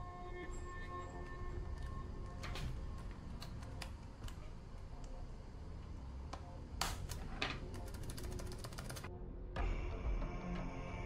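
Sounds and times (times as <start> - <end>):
background music: 0.0 - 4.4, 6.5 - 11.0
keyboard keycaps clicking: 6.8 - 9.1.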